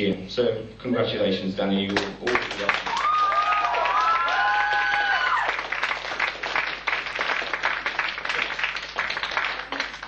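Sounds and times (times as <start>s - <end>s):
audience applauding: 1.9s - 10.0s
crowd whooping: 2.8s - 5.8s.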